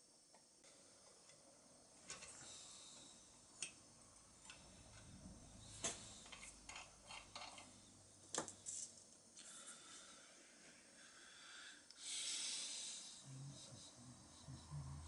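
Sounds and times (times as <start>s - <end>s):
small metal parts clicking: 6.2s - 7.7s.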